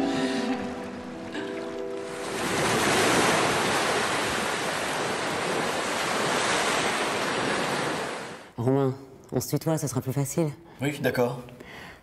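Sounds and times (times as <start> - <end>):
sea surf: 0.0 - 8.5
wind: 0.0 - 8.6.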